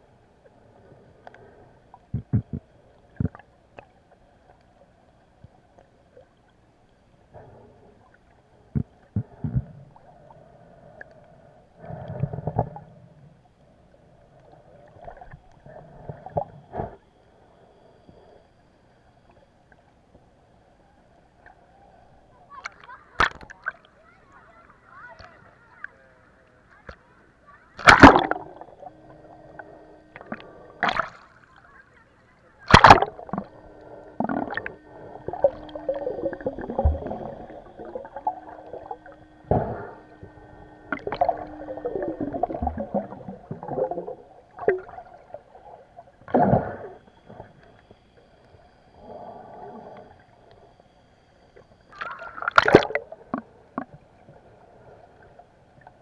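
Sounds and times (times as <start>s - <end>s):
sea water sloshing and gurgling: 0.0s - 17.4s, 22.3s - 25.9s, 27.6s - 32.0s, 32.6s - 56.0s
faint steady hum: 0.0s - 56.0s
loud splashes or knocks: 32.7s - 33.2s.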